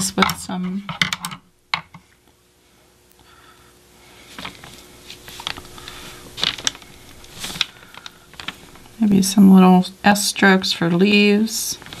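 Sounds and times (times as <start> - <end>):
bristles tapping palette: 0.0 - 2.0.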